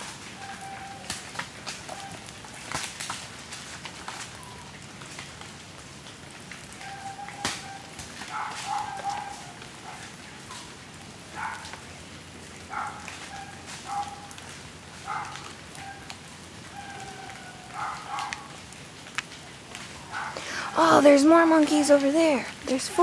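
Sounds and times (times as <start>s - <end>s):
footsteps crunching dry leaves: 8.1s - 9.6s.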